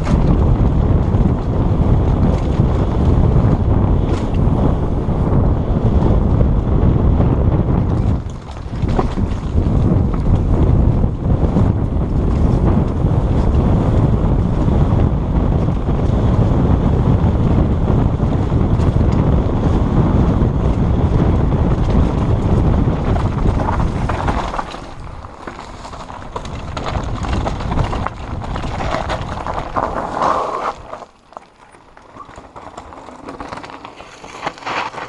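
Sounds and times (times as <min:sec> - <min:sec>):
bike rattling over rocky trail: 0:00.0 - 0:35.0
wind buffeting microphone: 0:00.0 - 0:35.0
tyres crunching on gravel: 0:21.4 - 0:35.0.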